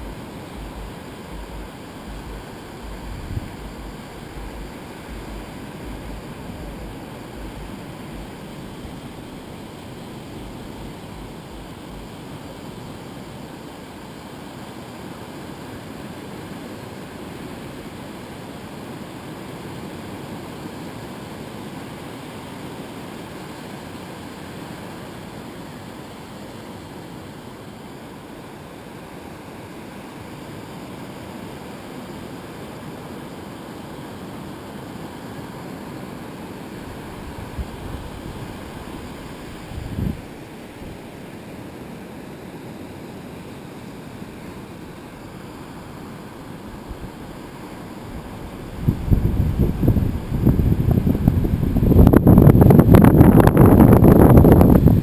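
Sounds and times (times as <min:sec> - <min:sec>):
wind rumble on microphone: 0:00.0 - 0:12.2, 0:36.9 - 0:41.1, 0:48.1 - 0:55.0
surf breaking on beach: 0:00.0 - 0:55.0.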